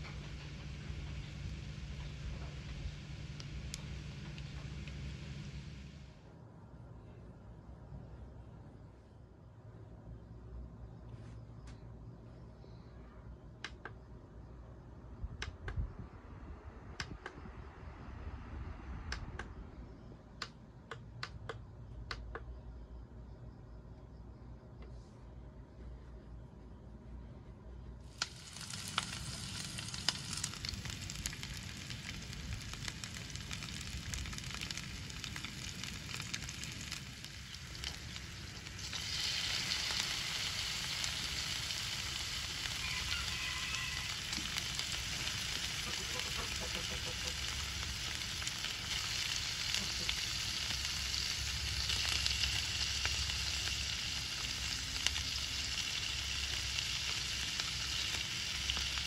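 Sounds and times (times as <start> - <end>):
meat and onions sizzling in oil: 28.1 - 59.0.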